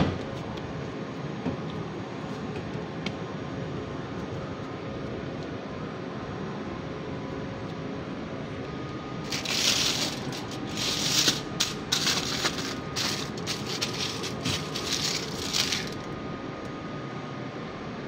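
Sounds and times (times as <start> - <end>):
background hum: 0.2 - 17.0
aluminium foil crinkling: 9.3 - 16.1.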